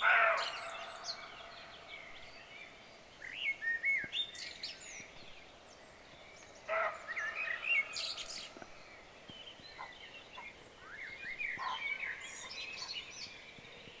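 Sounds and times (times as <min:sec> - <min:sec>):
loud bird call: 0:00.0 - 0:01.9, 0:06.7 - 0:08.2
songbirds singing: 0:00.0 - 0:14.0.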